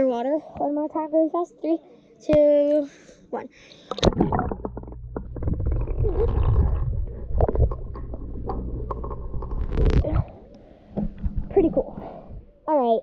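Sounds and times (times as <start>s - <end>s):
bubbling and gurgling clicks: 3.9s - 12.5s
muffled underwater rumble: 4.0s - 12.6s.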